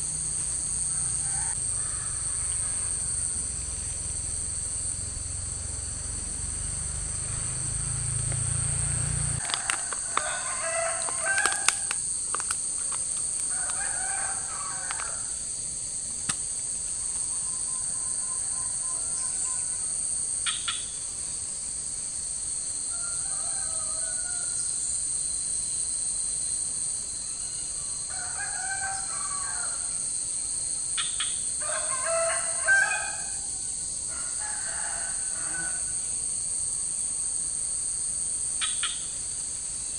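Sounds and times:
insects droning: 0.0 - 39.9
roosters crowing: 0.6 - 3.9, 4.8 - 15.5, 17.0 - 20.1, 22.9 - 24.8, 27.4 - 30.0, 31.6 - 36.0.

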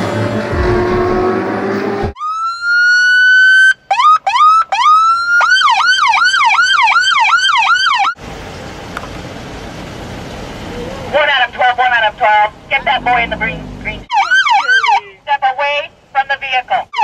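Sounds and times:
music sting: 0.0 - 2.1
police siren wailing and yelping: 2.1 - 8.2, 10.8 - 15.1.

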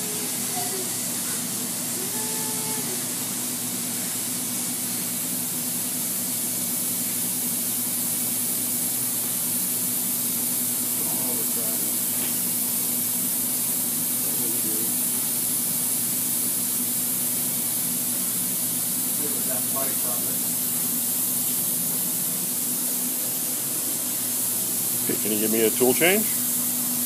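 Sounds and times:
router machine hissing and humming: 0.0 - 3.2, 24.6 - 27.0.

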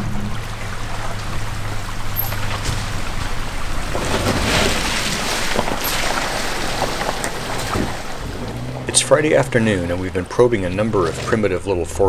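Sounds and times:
car engine humming: 0.0 - 12.0
tyres splashing through water: 0.0 - 12.0.

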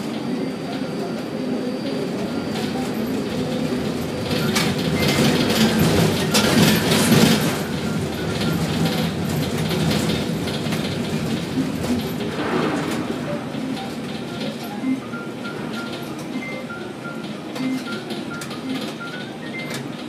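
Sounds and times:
crane motor hum: 0.0 - 20.0
metal clattering and clanking: 2.6 - 14.8.

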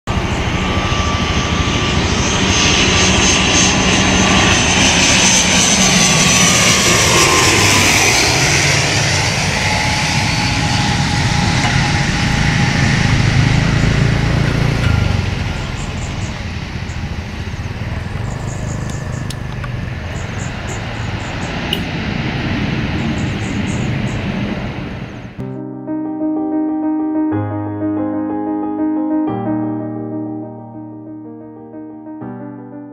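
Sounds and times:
turboprop plane passing by: 0.1 - 25.4.

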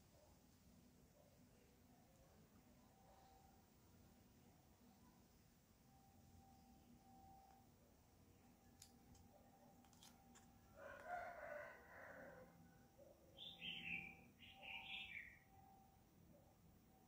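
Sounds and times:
distant rooster crowing: 10.7 - 12.8.

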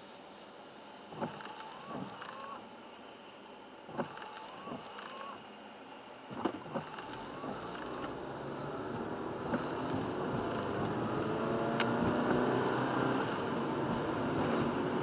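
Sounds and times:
car engine accelerating: 6.7 - 15.0.

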